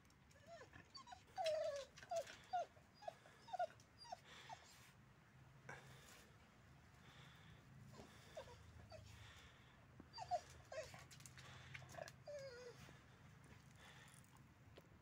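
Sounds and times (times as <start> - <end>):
dog whimpering: 0.4 - 4.6, 8.0 - 9.0, 10.1 - 11.1, 12.0 - 12.8.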